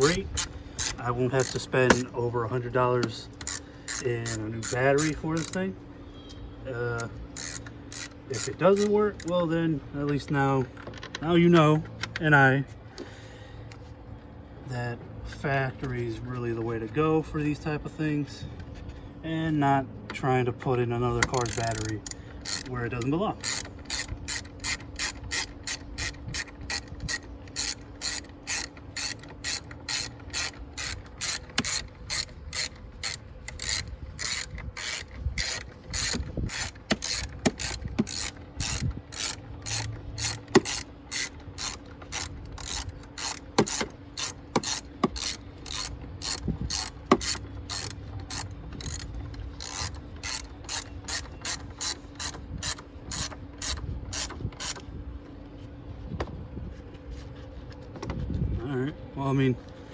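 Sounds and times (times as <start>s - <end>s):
socket ratchet clicking: 0.0s - 2.1s, 3.0s - 5.6s, 7.0s - 9.4s, 21.2s - 54.8s.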